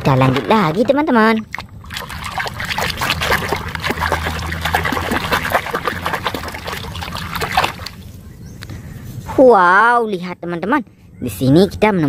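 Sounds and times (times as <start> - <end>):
water splashing in tub: 0.1 - 8.0.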